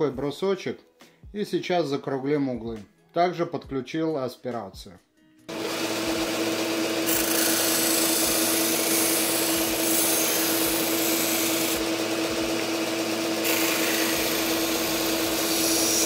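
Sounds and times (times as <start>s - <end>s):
sander motor hum: 5.5s - 16.0s
wood rasping on sanding disc: 7.0s - 16.0s.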